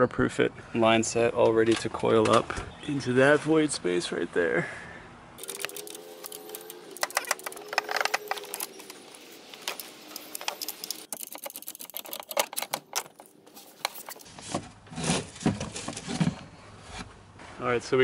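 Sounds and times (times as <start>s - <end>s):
cables clicking and rattling: 5.4s - 14.3s.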